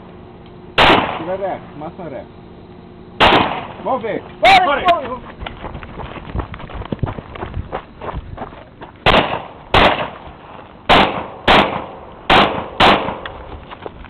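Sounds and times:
gunshots with echo: 0.8s - 1.3s, 3.2s - 3.8s, 9.1s - 10.2s, 10.9s - 13.2s.

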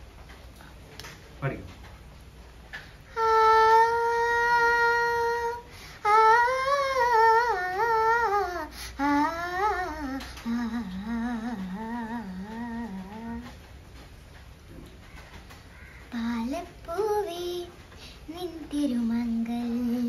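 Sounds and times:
girl humming a melody: 3.1s - 13.6s, 18.3s - 20.0s.

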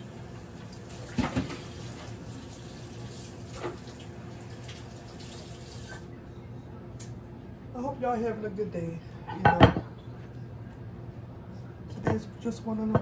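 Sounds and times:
tap water running into sink: 0.0s - 6.0s.

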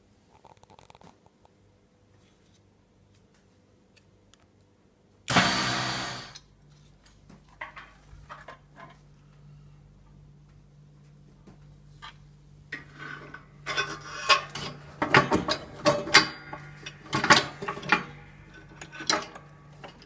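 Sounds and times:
engine starting and idling: 5.3s - 6.4s.

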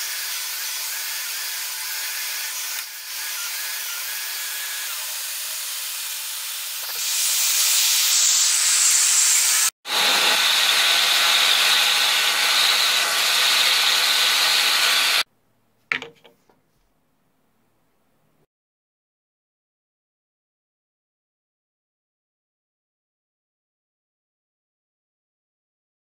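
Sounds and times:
bandsaw running: 0.0s - 15.3s
vacuum cleaner hissing: 6.4s - 15.3s.

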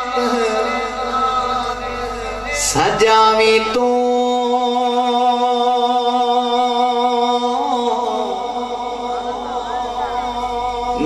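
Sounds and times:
man singing long note: 0.0s - 11.0s.

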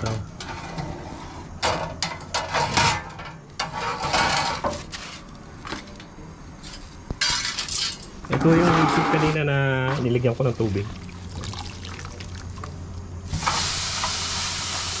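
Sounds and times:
metal tray scraping and clattering: 0.0s - 5.3s, 6.6s - 10.3s.

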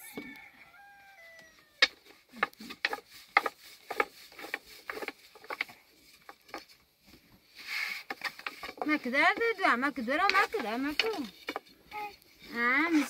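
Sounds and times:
rooster crowing: 0.0s - 2.0s.

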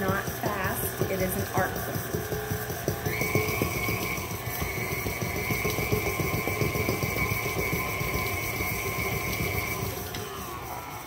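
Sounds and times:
stand mixer motor whining: 0.0s - 11.0s.

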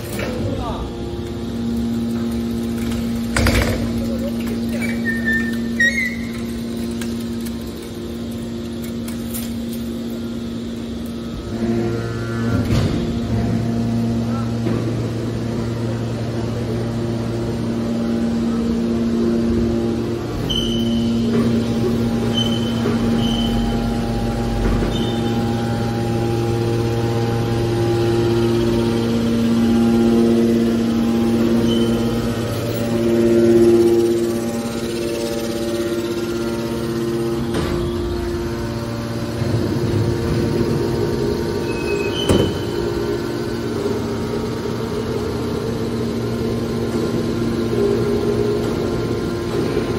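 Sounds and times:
hydraulic power unit humming: 0.0s - 49.9s
high squeaks: 4.7s - 6.6s, 31.6s - 32.3s.

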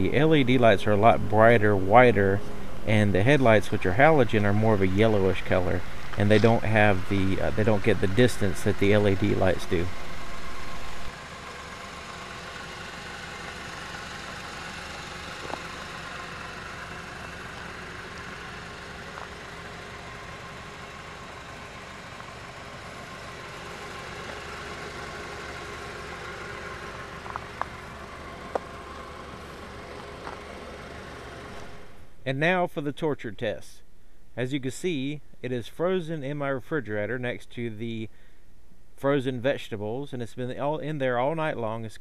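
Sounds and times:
car engine idling: 0.0s - 32.2s.

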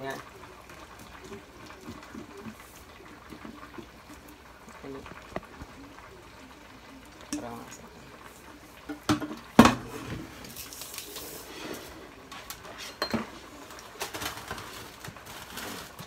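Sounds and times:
cookware clanking on countertop: 12.8s - 13.4s.

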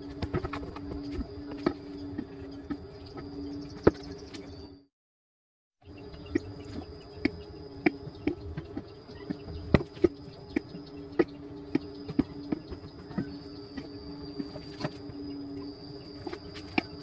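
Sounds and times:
faint high whine: 0.0s - 4.9s, 5.8s - 17.0s
steady low hum: 0.0s - 4.9s, 5.8s - 17.0s.

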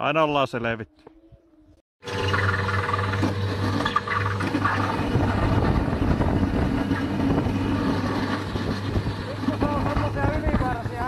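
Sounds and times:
snowmobile engine running: 4.6s - 11.0s.

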